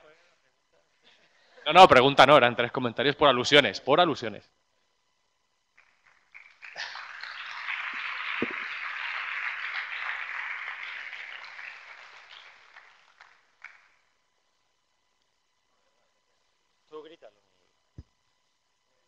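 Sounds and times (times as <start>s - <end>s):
audience applauding: 5.8s - 14.0s.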